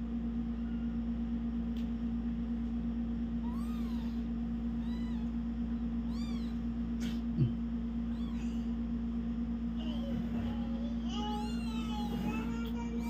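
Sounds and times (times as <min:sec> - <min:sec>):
steady hum: 0:00.0 - 0:13.0
kittens mewing: 0:03.4 - 0:08.8.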